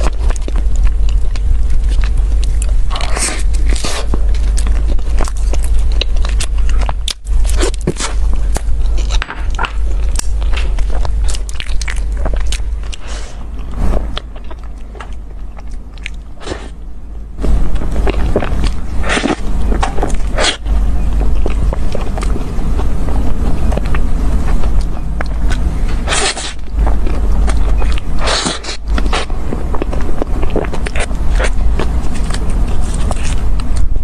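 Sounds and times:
crunchy chewing: 0:00.0 - 0:34.0
steady low hum: 0:00.0 - 0:34.0.

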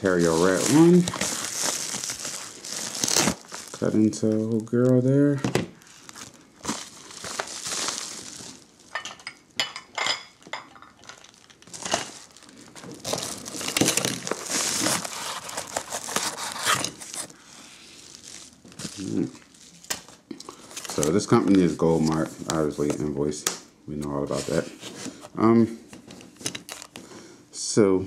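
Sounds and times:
packaging crinkling and rustling: 0:00.0 - 0:09.3, 0:10.8 - 0:23.4, 0:24.0 - 0:27.2.

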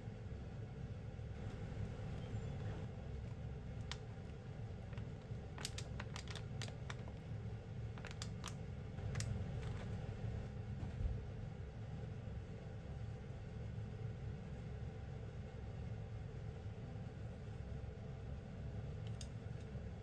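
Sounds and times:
faint low rumble: 0:00.0 - 0:20.0
plastic wrapping crinkling: 0:03.8 - 0:07.3, 0:07.9 - 0:10.0.

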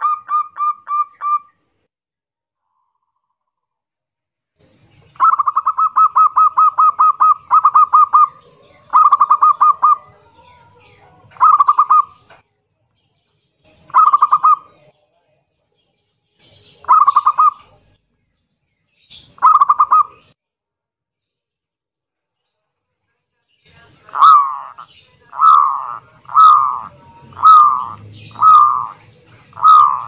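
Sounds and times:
dove cooing: 0:00.0 - 0:01.5, 0:05.2 - 0:10.2, 0:11.3 - 0:12.2, 0:13.9 - 0:14.8, 0:16.8 - 0:17.8, 0:19.4 - 0:20.2, 0:24.0 - 0:30.0.

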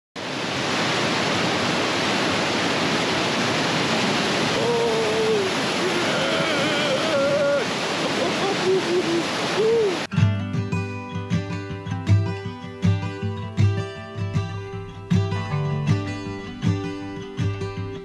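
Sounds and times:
whitewater river rushing: 0:00.2 - 0:10.1
man exclaiming: 0:04.5 - 0:10.1.

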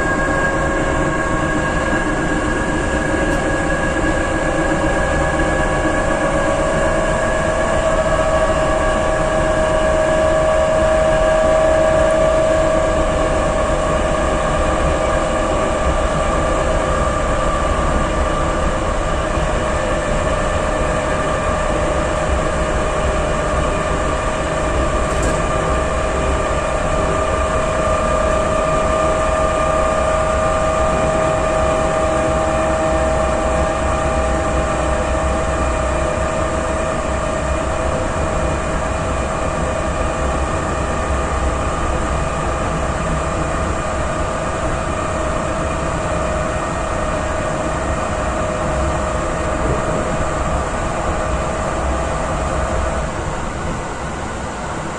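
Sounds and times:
wheels rumbling on rail: 0:00.0 - 0:29.4, 0:42.0 - 0:54.9.

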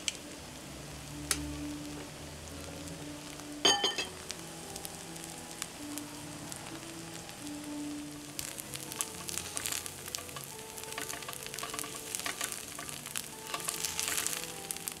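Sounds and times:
rice sizzling on griddle: 0:00.0 - 0:15.0
spatulas scraping and clicking on pan: 0:09.2 - 0:14.5.

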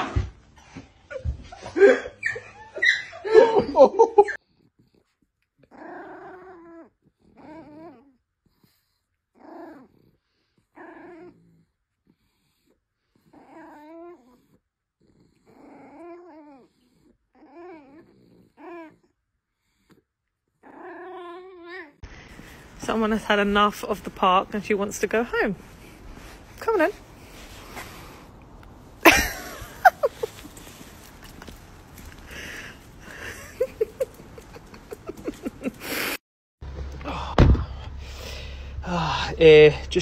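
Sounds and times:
dog whining: 0:01.1 - 0:03.4, 0:05.6 - 0:08.2, 0:13.2 - 0:14.5, 0:15.2 - 0:19.1, 0:20.6 - 0:22.0
loud laughter: 0:29.1 - 0:30.3.

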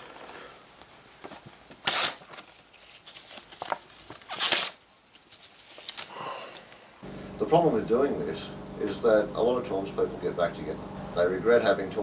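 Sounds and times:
paper crinkling and rustling: 0:00.0 - 0:06.7
photo paper ripping: 0:01.3 - 0:06.2.

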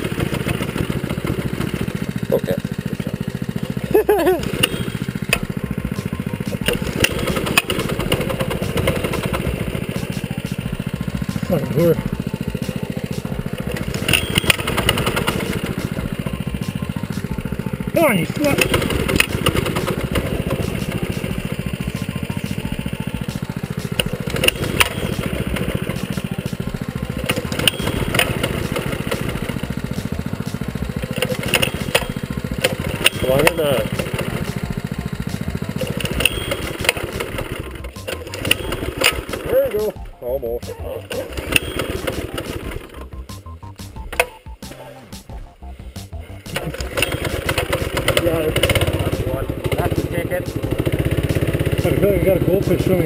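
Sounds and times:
small engine putter: 0:00.0 - 0:43.4, 0:44.0 - 0:44.8, 0:46.2 - 0:53.0
sharp clicks: 0:04.4 - 0:10.6, 0:13.6 - 0:17.3, 0:18.5 - 0:21.4, 0:23.8 - 0:26.3, 0:35.8 - 0:40.0
sharp clicks and knocks: 0:06.5 - 0:10.6, 0:18.6 - 0:21.4, 0:23.3 - 0:26.3, 0:27.2 - 0:34.6.

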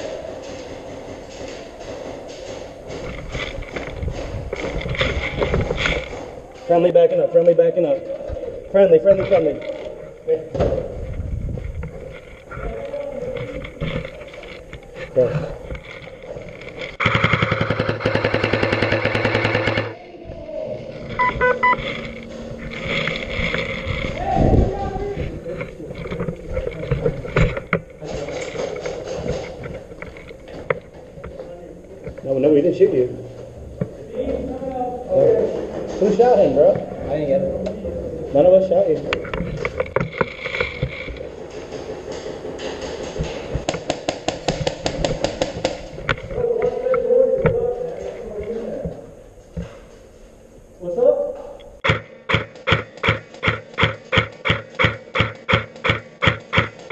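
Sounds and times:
airsoft rifle full-auto burst: 0:17.0 - 0:19.9, 0:51.8 - 0:56.9
short electronic beeps: 0:21.2 - 0:21.9.

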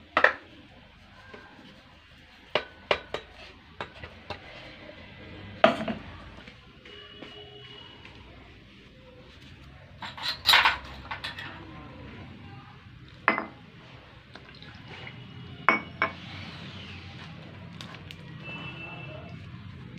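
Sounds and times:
water pouring with soft hiss: 0:14.1 - 0:15.5.

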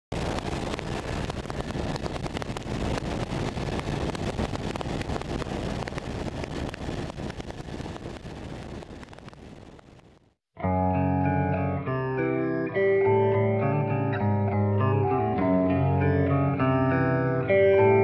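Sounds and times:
helicopter rotor and engine noise: 0:00.2 - 0:09.2.

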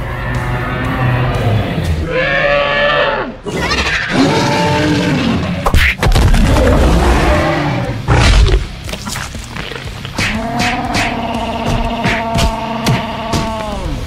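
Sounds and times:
background music: 0:00.0 - 0:14.0
dinosaur roars: 0:00.9 - 0:05.6, 0:06.4 - 0:08.7.

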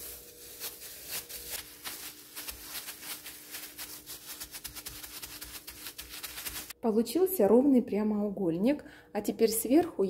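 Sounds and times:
plastic gloves and cling film crinkling: 0:00.0 - 0:06.8.

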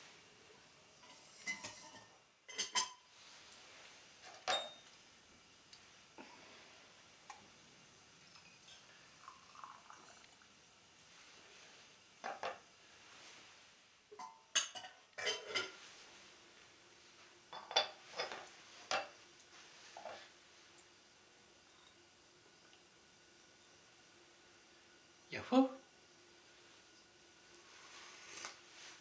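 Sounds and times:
metal vessels clinking and knocking: 0:01.0 - 0:03.0, 0:04.3 - 0:04.9, 0:12.2 - 0:12.6, 0:14.1 - 0:15.8, 0:17.5 - 0:19.1.

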